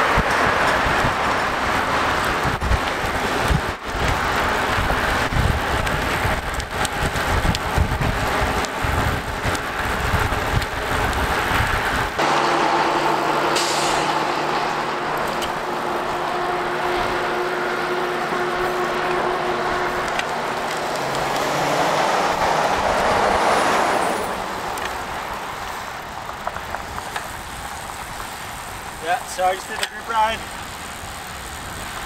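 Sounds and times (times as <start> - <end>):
wind buffeting microphone: 0.0 - 12.2
truck passing: 0.0 - 29.7
road traffic noise: 0.0 - 32.0
steady engine hum: 0.0 - 32.0.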